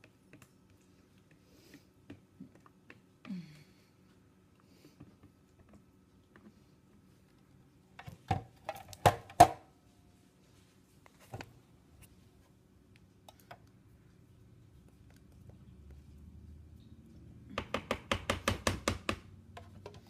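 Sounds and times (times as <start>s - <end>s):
spatula knocking plastic bowl: 17.6s - 19.9s.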